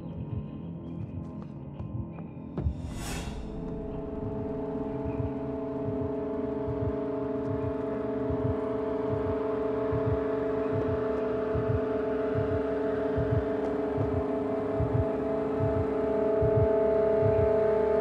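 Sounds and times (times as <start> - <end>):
soft low thumps: 2.6 - 6.1
low drone chord: 3.3 - 9.9.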